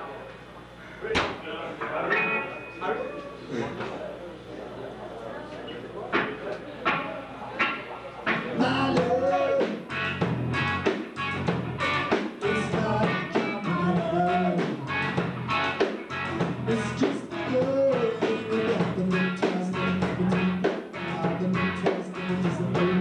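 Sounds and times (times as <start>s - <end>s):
drums: 6.1s - 23.0s
electric guitar: 6.1s - 23.0s
bass guitar: 6.2s - 23.0s.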